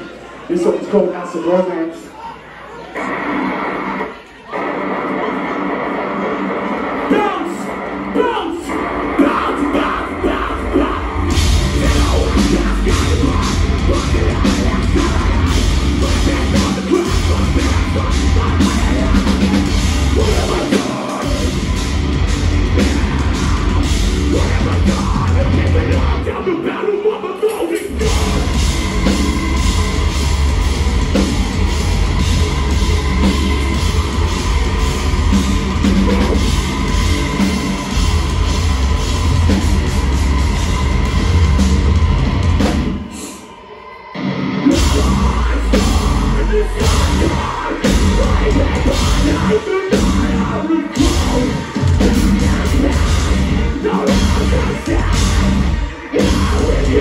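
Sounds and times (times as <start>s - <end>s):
metalcore band playing live: 3.0s - 57.0s.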